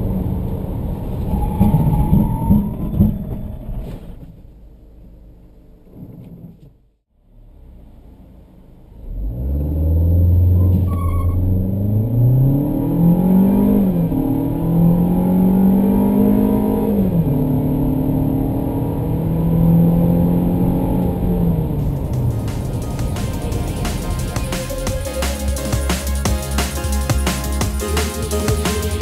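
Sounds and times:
car engine accelerating hard: 7.2s - 29.0s.

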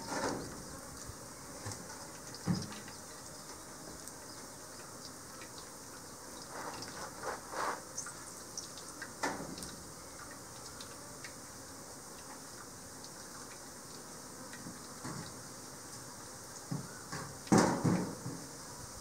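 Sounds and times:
steady high hiss: 0.0s - 19.0s
faint ticks: 1.0s - 7.0s, 8.0s - 16.7s
plastic gloves rustling: 6.5s - 7.8s.

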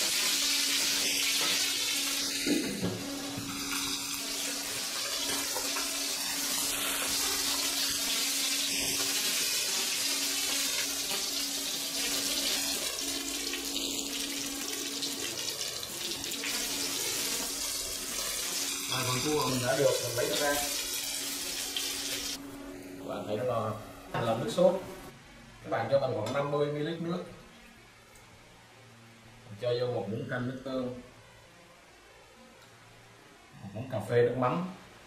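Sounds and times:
food sizzling in oil: 0.0s - 22.4s.

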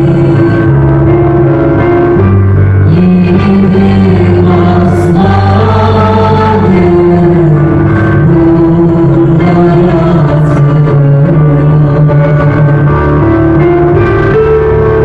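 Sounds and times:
piano accompaniment: 0.0s - 15.0s
group of voices singing: 2.8s - 13.3s.

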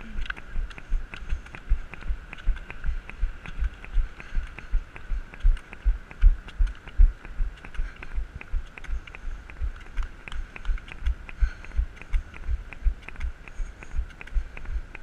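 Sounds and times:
faint steady tone: 0.0s - 15.0s.

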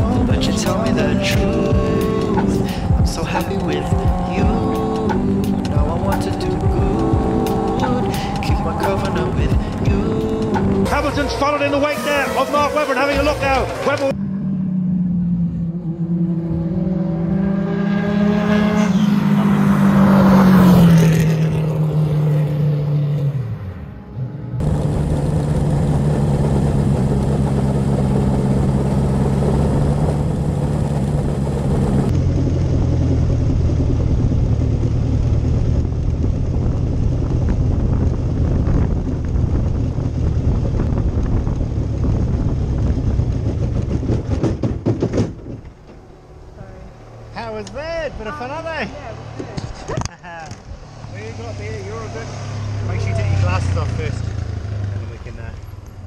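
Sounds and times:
race car engine passing by: 10.6s - 32.8s, 46.0s - 55.8s.

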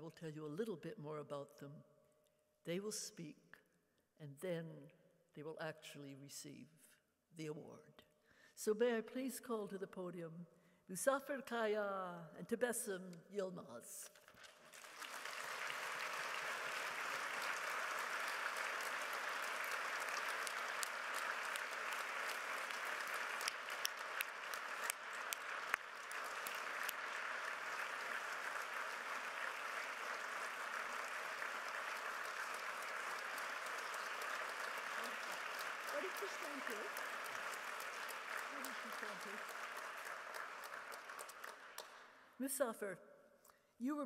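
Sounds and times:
audience applauding: 14.3s - 42.1s.

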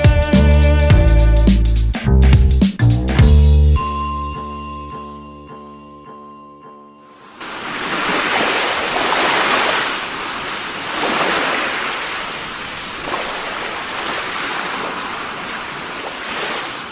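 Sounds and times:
ocean surf washing over rocks: 7.3s - 16.9s.

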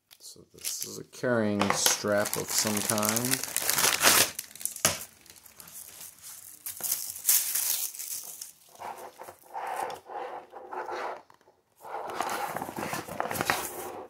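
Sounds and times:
dry bag fabric crinkling: 2.0s - 8.8s.

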